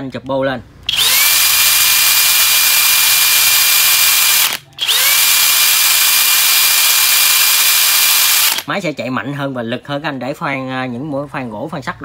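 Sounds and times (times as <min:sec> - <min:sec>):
hammer drill high whine: 0:00.9 - 0:08.7.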